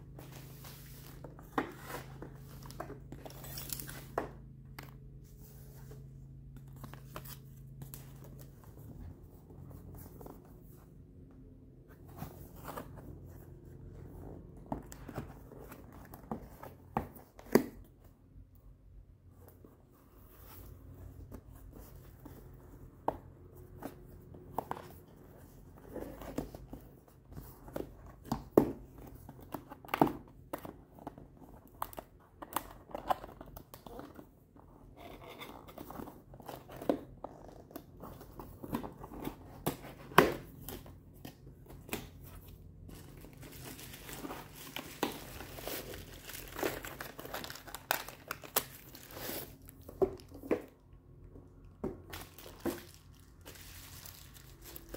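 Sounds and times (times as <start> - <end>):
packaging crinkling and tearing: 42.9 - 50.4, 52.1 - 54.9.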